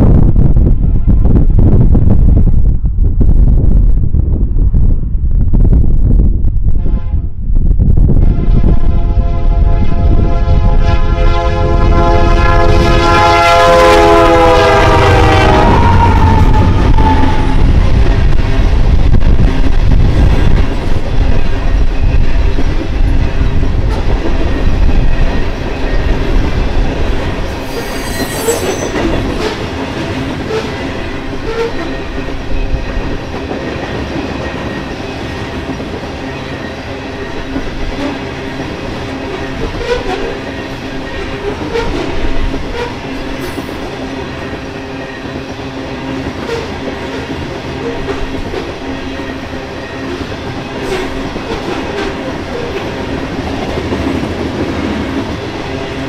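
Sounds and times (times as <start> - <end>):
deep rumble: 0.0 - 10.8, 15.6 - 22.3
metallic whine: 15.4 - 19.1, 21.2 - 41.6
train wheels clattering on rail: 15.7 - 56.0.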